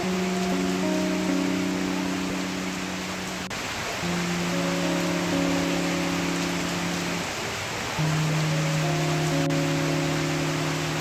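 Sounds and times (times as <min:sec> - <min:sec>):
music of long low notes: 0:00.0 - 0:07.3, 0:08.0 - 0:11.0
heavy rain on standing water: 0:00.0 - 0:11.0.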